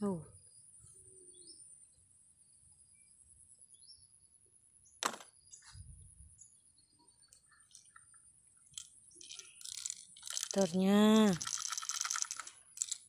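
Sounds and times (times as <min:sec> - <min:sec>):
bird chirp: 0:00.1 - 0:11.2
plastic toys knocking on grass: 0:05.0 - 0:05.4
plastic toy clack: 0:08.7 - 0:13.0.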